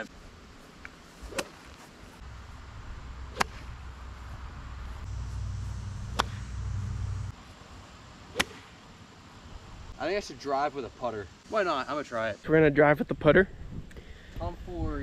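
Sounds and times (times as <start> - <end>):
low rumble: 2.2 - 7.4
golf club striking ball: 3.3 - 3.8, 5.2 - 7.3, 8.3 - 8.7.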